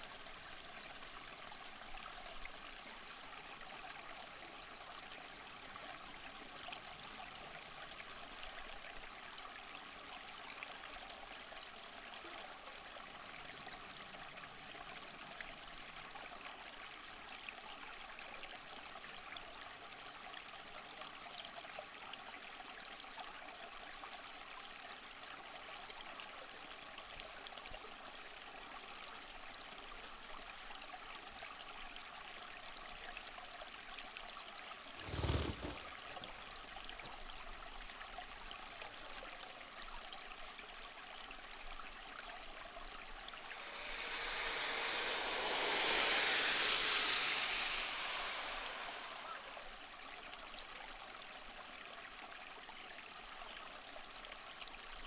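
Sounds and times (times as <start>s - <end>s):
running water: 34.8s - 37.2s, 42.2s - 50.5s.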